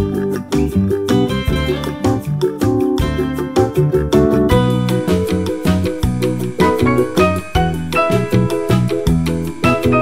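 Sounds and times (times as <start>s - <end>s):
bouncy keyboard tune with beat: 0.0s - 10.0s.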